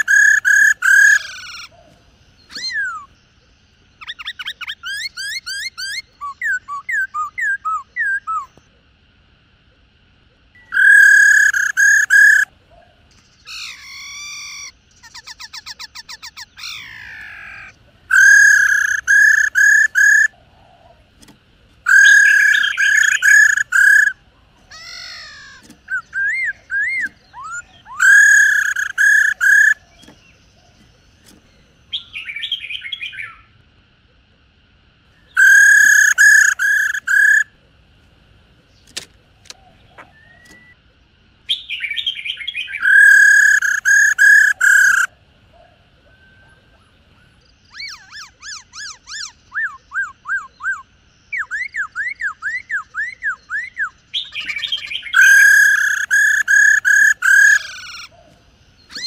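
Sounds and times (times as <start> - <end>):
bird whistled glides: 0.0 - 3.2, 10.5 - 12.5, 13.3 - 21.1, 21.8 - 24.3, 25.2 - 33.4, 39.6 - 40.8, 46.0 - 59.0
bird fast trill: 0.0 - 8.6, 10.5 - 21.1, 21.8 - 33.5, 35.1 - 37.6, 41.5 - 45.1, 46.4 - 59.0
bird ringing notes: 21.8 - 24.2.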